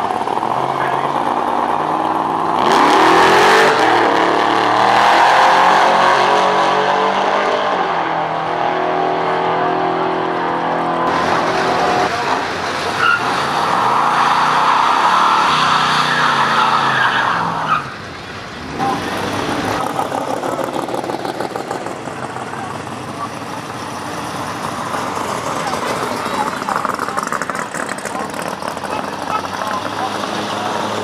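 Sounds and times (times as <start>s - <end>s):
car engine revving: 0.0s - 31.0s
drag car accelerating: 0.0s - 31.0s
tyres squealing: 12.8s - 18.0s.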